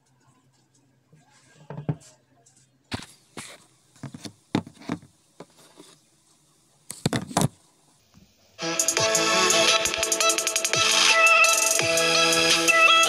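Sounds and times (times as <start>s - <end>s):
hands handling phone on tabletop: 2.9s - 6.0s, 6.9s - 7.6s.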